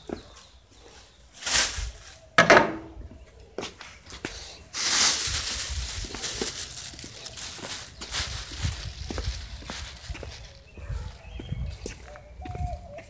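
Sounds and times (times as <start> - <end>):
plastic bag rustling and crinkling: 4.1 - 11.8.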